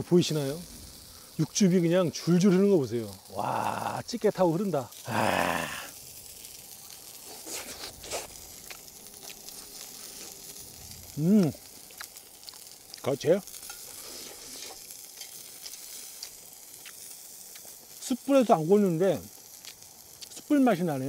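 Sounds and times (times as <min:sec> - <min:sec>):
meat sizzling in oil: 0:00.0 - 0:21.0
person speaking: 0:01.4 - 0:05.9
man exclaiming: 0:02.4 - 0:04.3, 0:05.0 - 0:05.9, 0:11.2 - 0:11.6.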